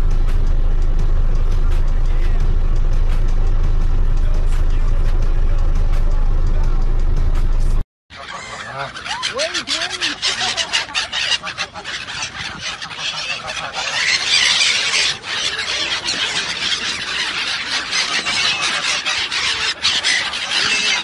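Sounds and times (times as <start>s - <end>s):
park birds calling: 8.1s - 21.0s.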